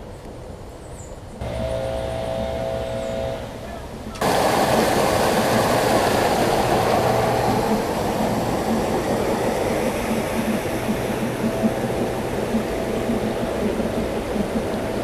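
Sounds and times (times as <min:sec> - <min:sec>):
water rushing over rocks: 0:04.2 - 0:11.3.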